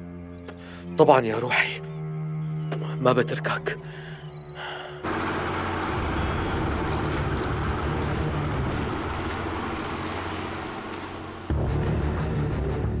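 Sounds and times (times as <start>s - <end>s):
outboard engine running: 4.5s - 11.8s
boat wake rushing on water: 4.6s - 11.7s.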